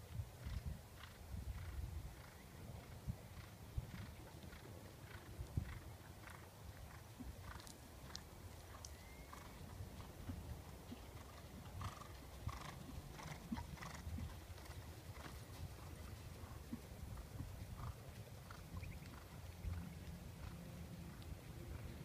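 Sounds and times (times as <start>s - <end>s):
horse hoofbeats: 9.2s - 22.0s.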